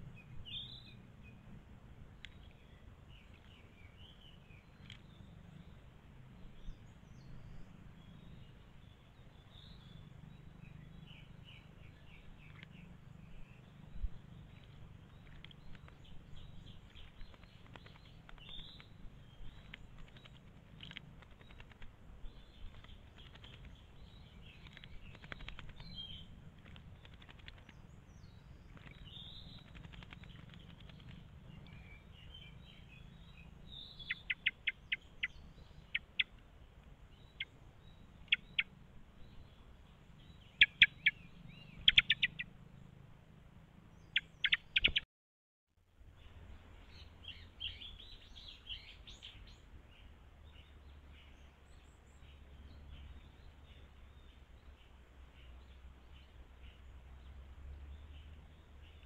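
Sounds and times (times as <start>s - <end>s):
steady low rumble: 0.0s - 45.0s
wild birds chirping: 0.0s - 45.0s, 45.9s - 59.0s.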